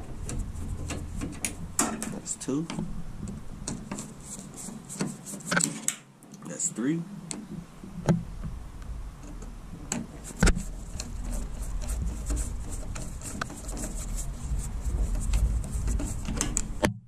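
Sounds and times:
screwdriver ticks and metal scrapes: 9.2 - 14.5.

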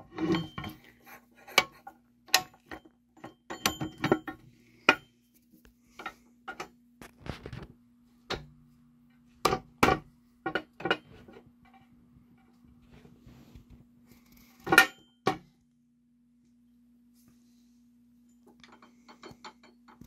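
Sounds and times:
metallic clicks and knocks: 18.4 - 20.0.

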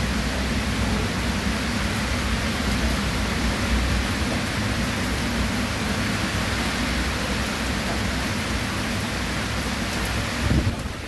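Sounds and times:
rain falling: 0.0 - 11.0.

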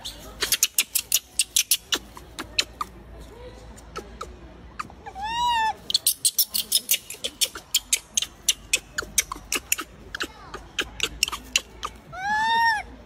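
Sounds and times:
monkey coo call: 4.0 - 12.9.

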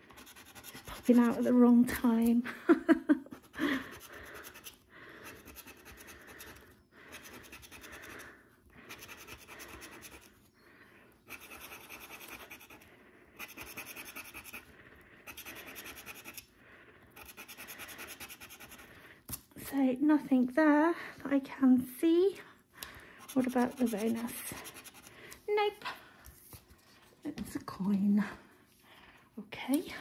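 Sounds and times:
scratcher scraping scratch card: 0.0 - 1.5, 11.3 - 12.8, 13.4 - 14.7, 15.3 - 16.5, 23.2 - 25.1.

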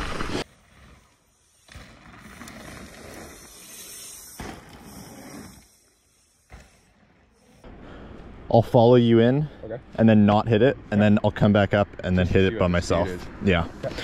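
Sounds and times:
bike tyre and wind noise: 0.0 - 8.5.

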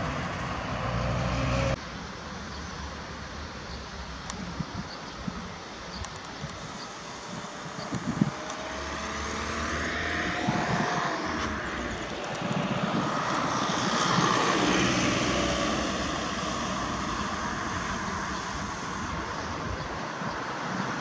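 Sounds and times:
road traffic: 0.0 - 21.0
aircraft passing overhead: 7.0 - 21.0.

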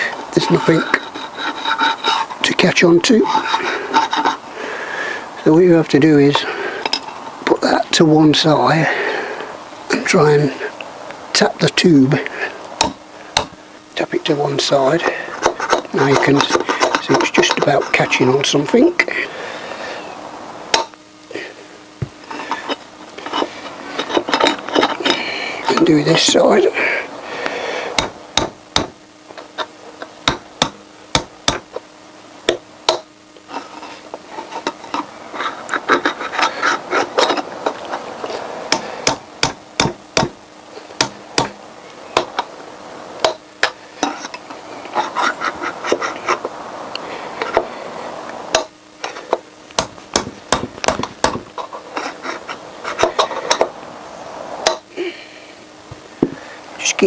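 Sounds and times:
hammer tapping metal drift: 12.8 - 13.6, 20.7 - 21.0, 28.0 - 31.8, 32.4 - 33.1, 38.7 - 40.4, 41.0 - 41.6, 48.5 - 53.7, 54.6 - 54.9.

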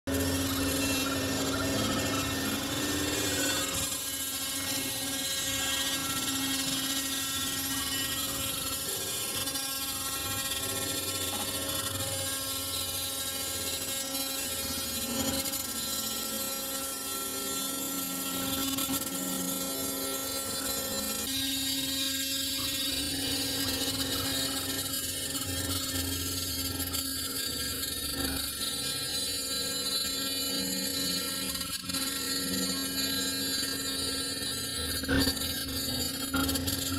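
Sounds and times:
router spindle whine: 0.1 - 36.9.

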